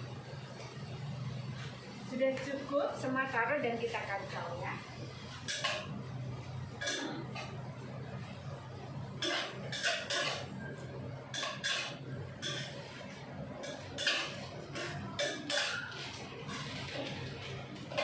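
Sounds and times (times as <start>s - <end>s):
metal spatula scraping a wok: 9.2s - 17.3s.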